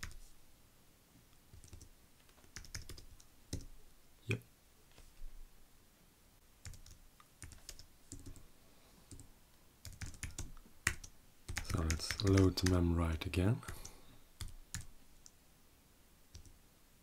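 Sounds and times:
computer keyboard typing: 0:00.0 - 0:00.2, 0:01.5 - 0:03.7, 0:06.6 - 0:08.4, 0:09.1 - 0:12.8, 0:13.6 - 0:14.9, 0:16.3 - 0:16.6.

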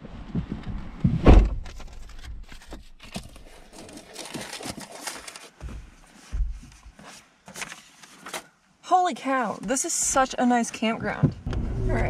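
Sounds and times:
paper rustling and crinkling: 0:01.7 - 0:08.5.

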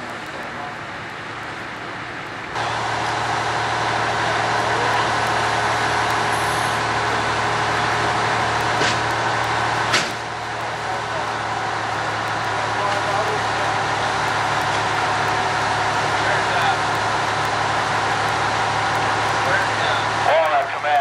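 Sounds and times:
broad rushing noise: 0:00.0 - 0:21.0
fire engine running: 0:00.0 - 0:21.0
sharp knocks: 0:09.9 - 0:10.3.

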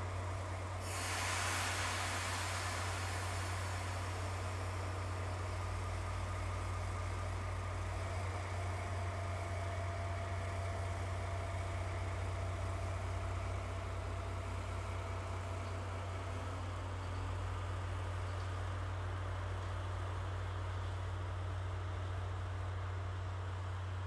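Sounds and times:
faint steady whine: 0:00.0 - 0:16.4
diesel engine idling: 0:00.0 - 0:18.2.

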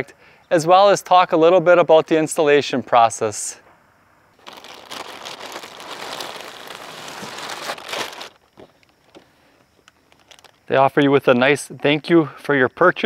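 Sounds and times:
plastic bag crinkling: 0:04.4 - 0:09.2, 0:10.0 - 0:10.6.

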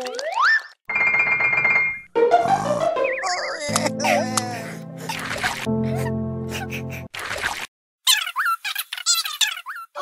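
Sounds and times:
held music chord: 0:03.7 - 0:05.1.

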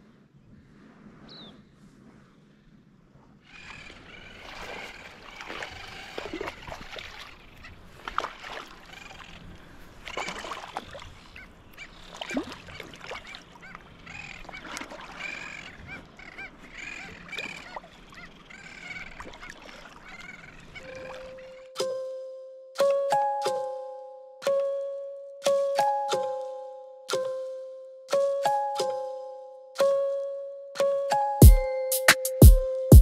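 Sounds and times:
seabirds honking cries: 0:03.5 - 0:26.6.

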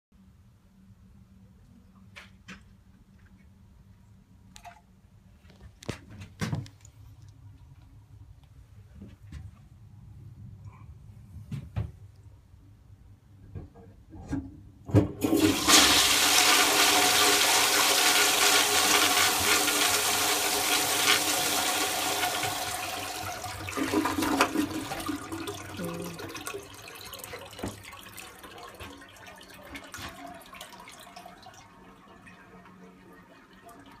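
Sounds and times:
toilet clunks: 0:13.5 - 0:16.9, 0:21.7 - 0:25.7, 0:26.3 - 0:28.0
toilet flushing water rush: 0:15.0 - 0:34.0
water running as bowl refills: 0:15.2 - 0:34.0.

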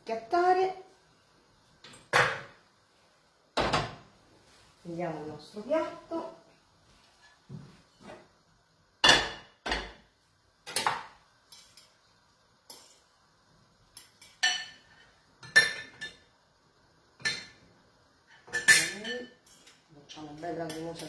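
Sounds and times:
dishes and cutlery clinking: 0:10.7 - 0:12.0, 0:13.9 - 0:16.3, 0:18.3 - 0:19.9.

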